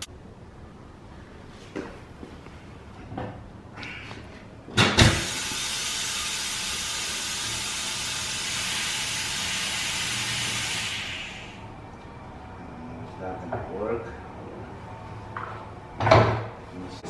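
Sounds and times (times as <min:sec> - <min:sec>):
compressed air hissing: 0:05.1 - 0:11.7.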